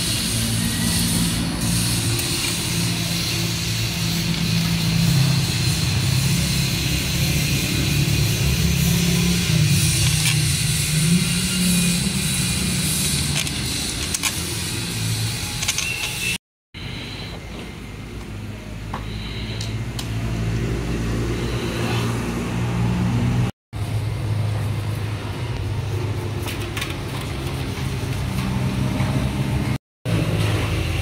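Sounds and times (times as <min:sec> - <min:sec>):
hand tools clicking on metal: 0:12.9 - 0:14.6.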